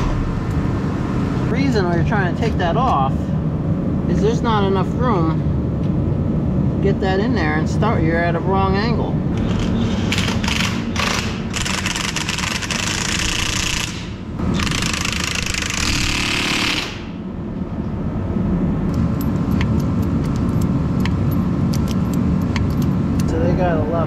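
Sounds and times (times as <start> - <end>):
steady low hum: 0.0 - 24.0
impact wrench hammering: 10.4 - 17.2.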